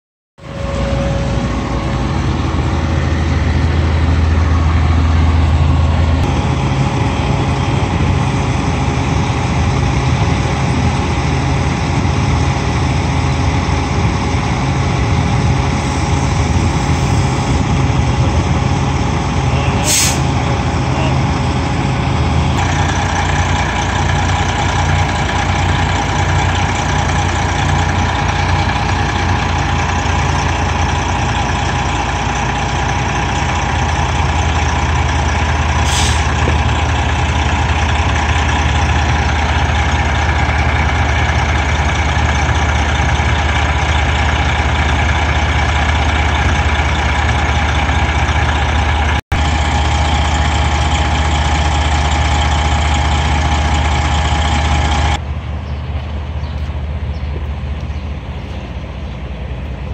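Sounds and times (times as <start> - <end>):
steady higher tone: 0.4 - 9.0
diesel engines humming: 0.4 - 59.9.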